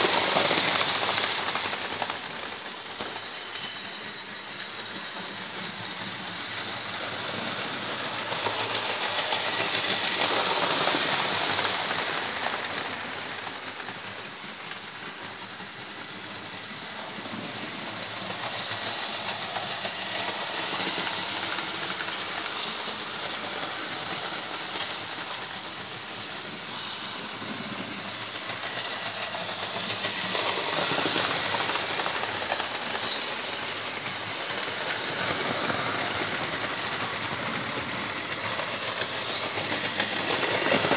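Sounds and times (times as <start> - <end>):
model train rattle and motor whir: 0.0 - 40.9.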